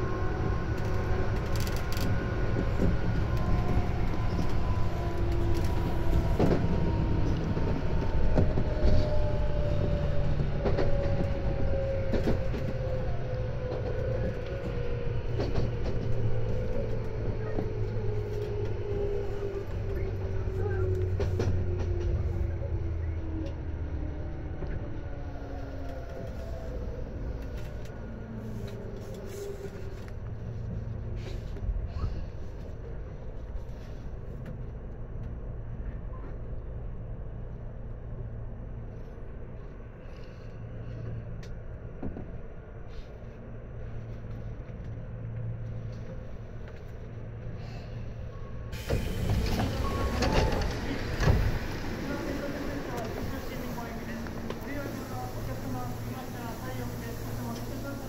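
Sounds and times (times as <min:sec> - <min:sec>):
low train running rumble: 0:00.0 - 0:58.0
train motor and gear whine: 0:39.4 - 0:58.0.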